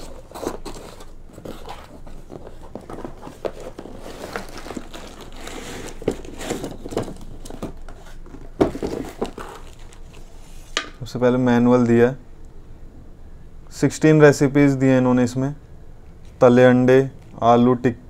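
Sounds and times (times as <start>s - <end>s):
plastic and paper crinkling: 0.0s - 10.8s
cardboard flaps scraping: 0.0s - 10.9s.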